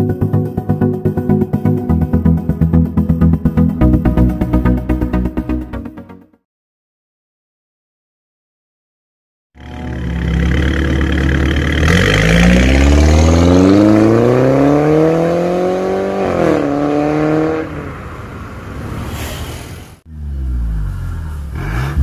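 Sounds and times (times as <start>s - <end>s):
car engine accelerating hard: 9.6s - 18.1s, 20.1s - 22.0s.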